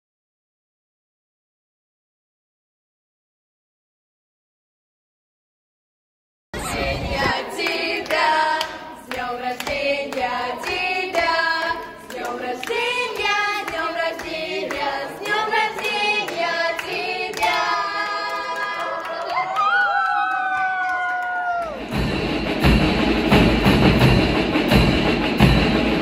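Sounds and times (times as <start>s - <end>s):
group singing in chorus: 6.6s - 19.4s
music with steady beat: 21.8s - 26.0s.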